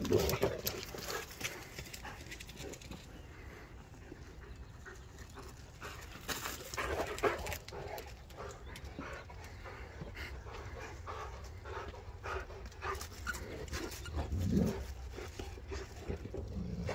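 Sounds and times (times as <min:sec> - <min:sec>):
dog panting hard: 0:00.7 - 0:16.4.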